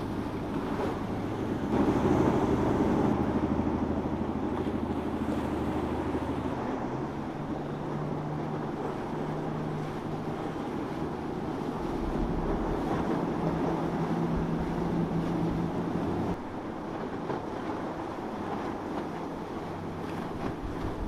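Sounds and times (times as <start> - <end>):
boat engines running: 0.0 - 21.0
water rushing along hull: 0.0 - 21.0.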